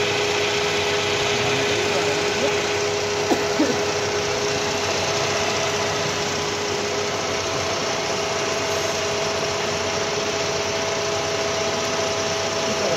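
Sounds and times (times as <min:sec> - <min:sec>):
lathe machine hum: 0:00.0 - 0:12.9
steady whining tones: 0:00.0 - 0:12.9.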